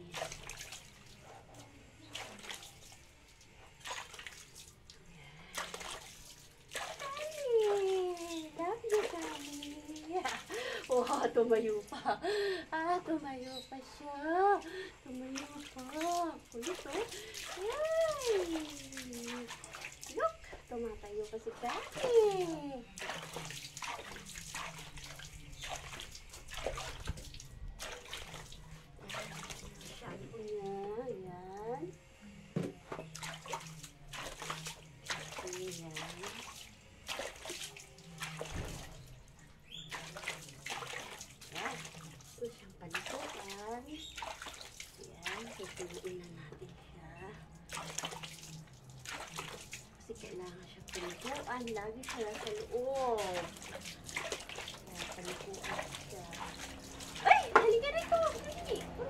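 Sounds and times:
hands scrubbing a wet dog: 0.0s - 12.0s, 15.2s - 31.0s, 33.4s - 39.1s, 39.7s - 46.7s, 47.7s - 59.0s
water splashing: 0.0s - 31.6s, 33.0s - 59.0s.

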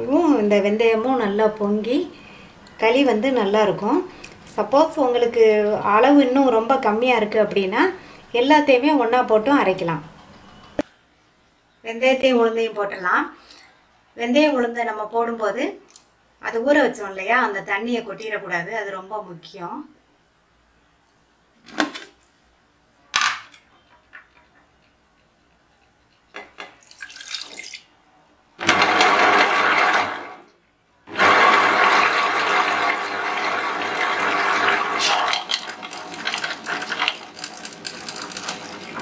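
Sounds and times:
water and seeds splashing into grinder: 26.8s - 27.8s, 31.2s - 39.0s.

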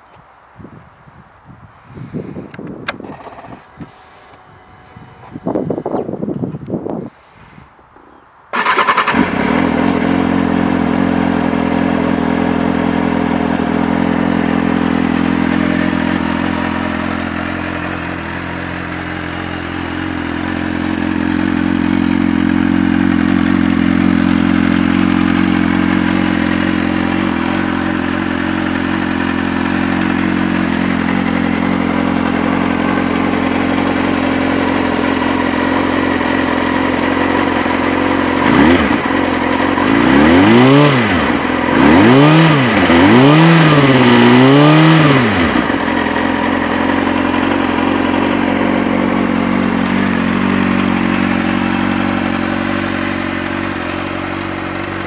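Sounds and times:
motorcycle engine starting and idling: 2.4s - 7.2s, 8.1s - 55.0s.

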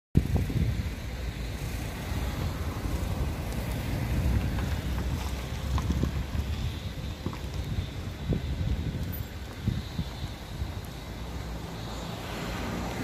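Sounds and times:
wind buffeting microphone: 0.2s - 13.0s.

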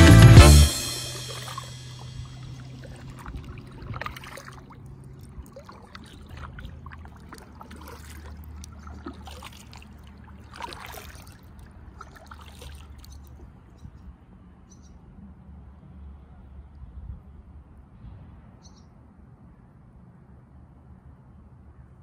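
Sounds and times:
river low rumble: 0.0s - 22.0s
kayak paddle strokes in water: 0.6s - 13.7s
water dripping off paddle: 1.0s - 13.6s.

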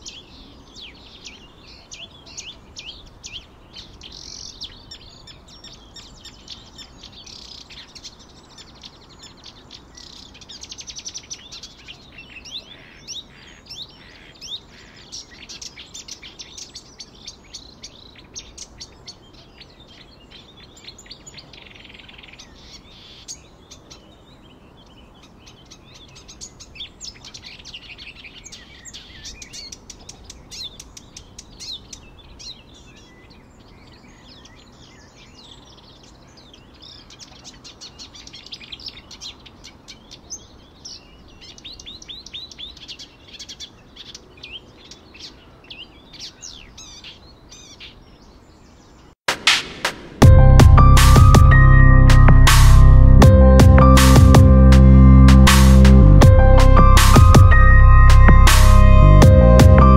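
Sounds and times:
small birds chirping: 0.0s - 49.2s.

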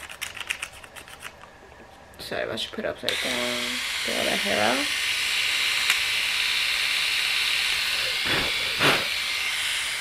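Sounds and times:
electric shaver whirring: 3.1s - 10.0s.

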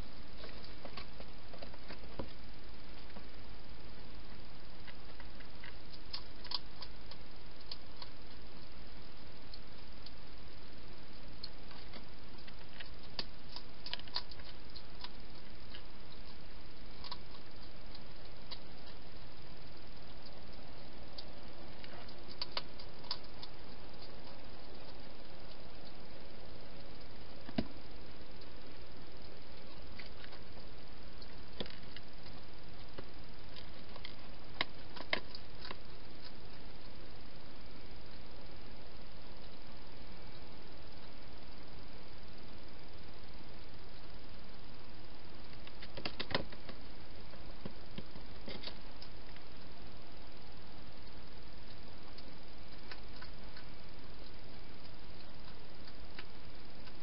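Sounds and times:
steady hiss: 0.0s - 57.0s
hedgehog crunching food: 4.8s - 8.7s, 11.4s - 37.0s.

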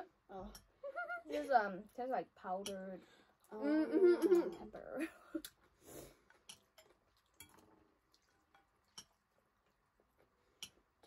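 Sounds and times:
chopsticks clicking on ceramic bowls: 0.4s - 0.7s, 2.6s - 2.9s, 6.3s - 7.6s, 8.4s - 9.2s, 10.6s - 10.8s
wet noodle eating sounds: 5.4s - 11.0s.

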